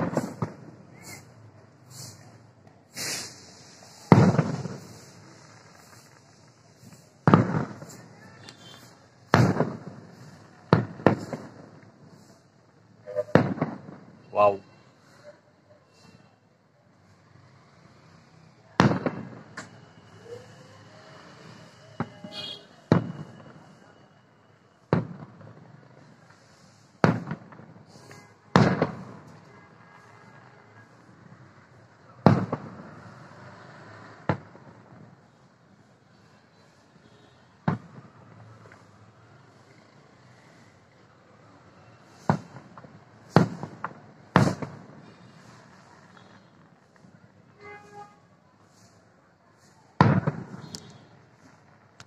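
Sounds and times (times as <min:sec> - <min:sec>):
firework shells bursting: 0:02.9 - 0:11.9, 0:50.0 - 0:51.0.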